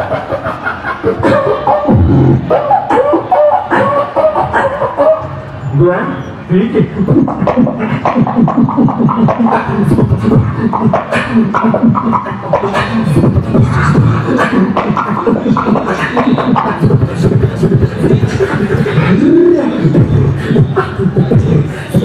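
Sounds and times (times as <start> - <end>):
beatboxing into a microphone: 0.0 - 22.0.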